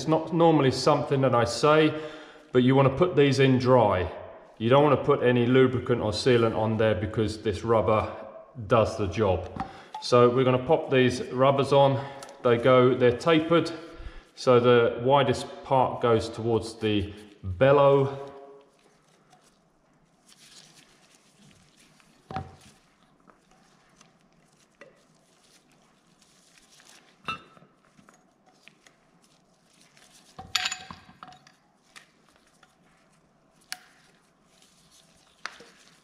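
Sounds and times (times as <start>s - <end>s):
metal tubes knocking and clinking: 30.4s - 31.6s.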